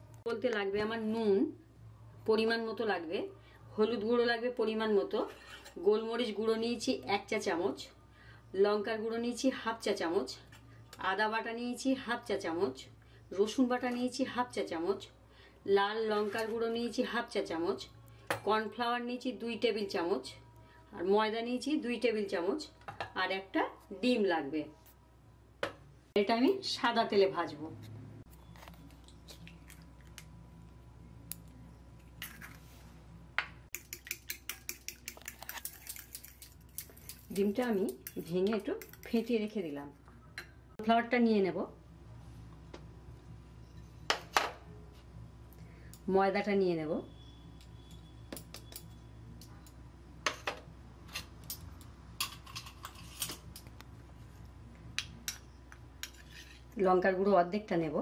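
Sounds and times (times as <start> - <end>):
fork beating egg in bowl: 33.7 - 39.3.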